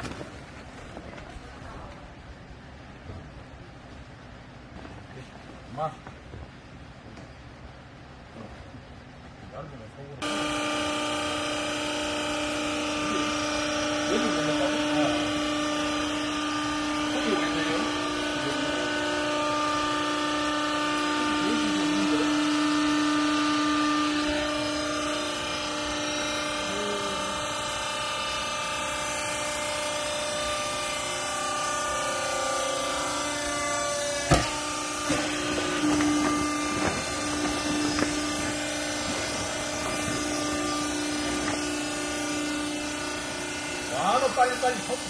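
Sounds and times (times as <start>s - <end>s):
hydraulic power unit humming: 0.0s - 45.0s
sharp knocks: 34.2s - 41.8s.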